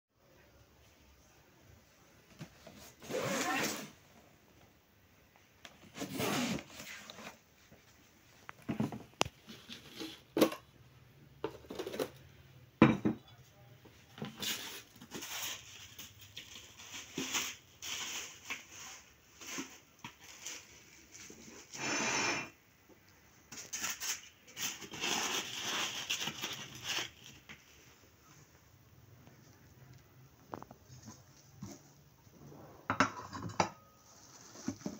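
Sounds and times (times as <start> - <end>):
crockery knocking and clinking: 12.8 - 13.3, 32.9 - 34.0.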